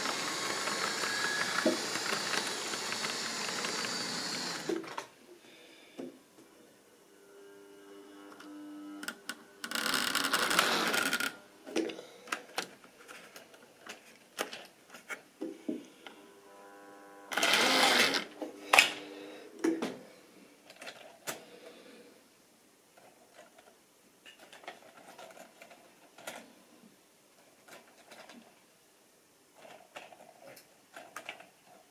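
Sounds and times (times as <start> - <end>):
model train motor whining: 0.0 - 5.1, 8.3 - 11.4, 17.3 - 18.3.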